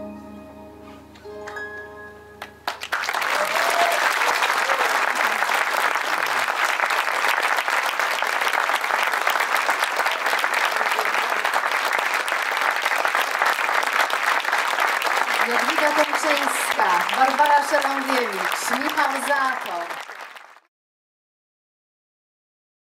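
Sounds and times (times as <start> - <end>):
music held notes: 0.0 - 2.7
audience applause: 2.4 - 20.7.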